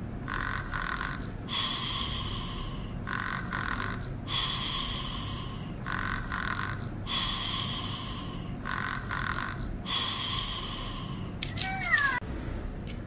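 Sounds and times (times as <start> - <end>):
electronic toy snoring: 0.2 - 10.6.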